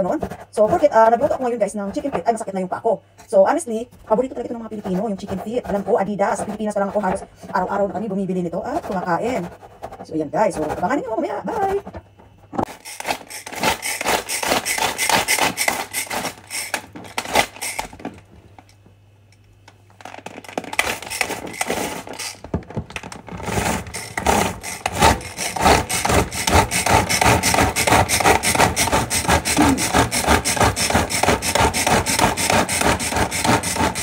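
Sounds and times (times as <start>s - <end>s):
pull cord food chopper whirring: 12.6s - 18.2s, 20.2s - 34.0s.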